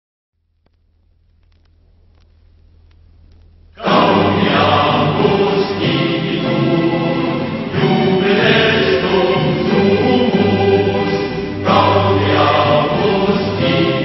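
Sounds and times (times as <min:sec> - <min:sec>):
faint low hum: 0:00.4 - 0:04.4
music with choral singing: 0:03.8 - 0:14.0.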